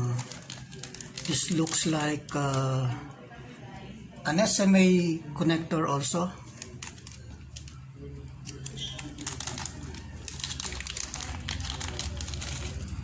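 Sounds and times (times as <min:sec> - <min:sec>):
plastic bag crinkling: 0:00.0 - 0:03.0, 0:08.4 - 0:13.0.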